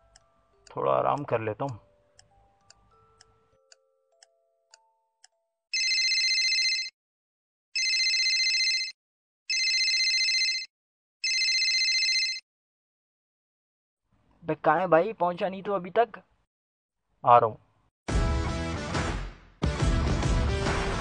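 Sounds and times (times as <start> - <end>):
clock ticking faintly: 0.0 - 5.4
mobile phone ringing: 5.7 - 7.0, 7.8 - 12.4.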